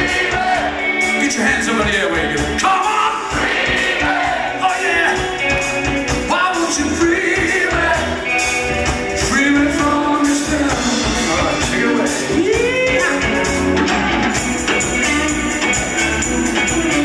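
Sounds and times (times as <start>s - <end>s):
drums: 0.0s - 17.0s
electric guitars: 0.0s - 17.0s
keyboard: 0.0s - 17.0s
live rock band playing: 0.0s - 17.0s
man singing lead vocals: 6.2s - 13.6s.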